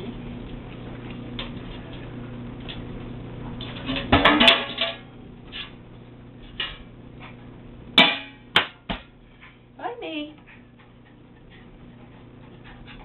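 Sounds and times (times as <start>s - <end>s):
metal cans clattering: 3.8s - 5.1s.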